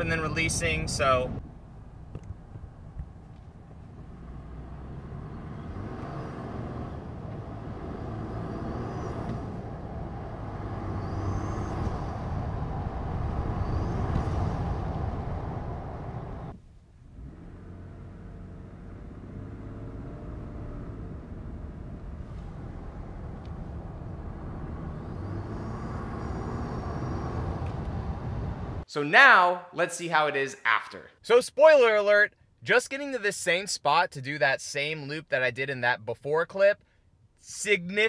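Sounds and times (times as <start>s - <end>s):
engine accelerating: 3.8s - 28.8s
faint turbo whistles: 4.0s - 16.6s, 17.2s - 28.8s.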